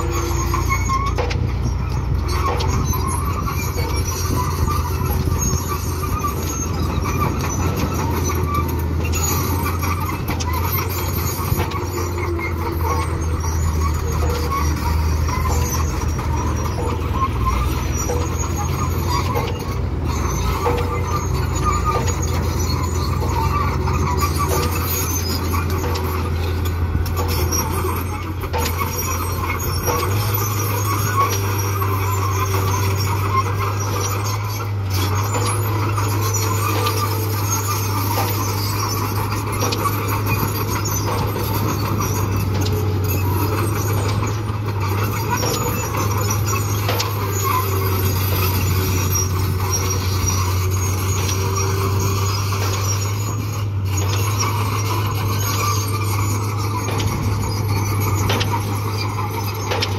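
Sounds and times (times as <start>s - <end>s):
bulldozer diesel engine: 0.0s - 59.9s
steel tracks clattering: 0.0s - 59.9s.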